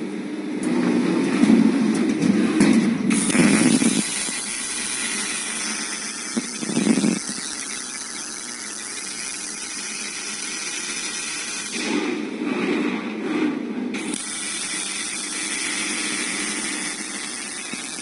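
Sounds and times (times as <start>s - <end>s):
welding arc hissing and crackling: 3.1s - 12.9s, 13.9s - 18.0s.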